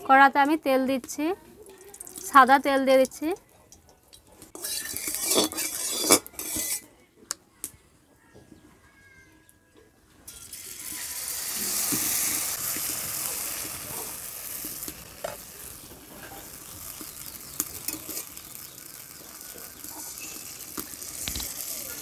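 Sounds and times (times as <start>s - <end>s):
ladle clicks and scrapes: 4.1s - 6.8s
batter sizzling in hot oil: 4.5s - 6.8s, 10.3s - 22.0s.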